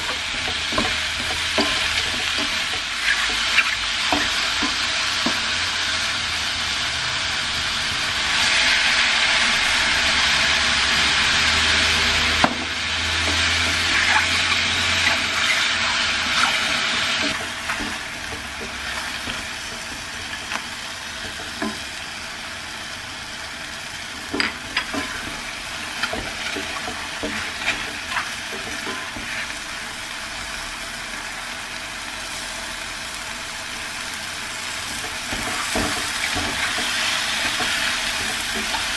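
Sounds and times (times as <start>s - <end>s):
wooden spatula scraping a pan: 0.0s - 5.6s, 24.3s - 29.6s
mushrooms sizzling in a skillet: 0.0s - 38.9s.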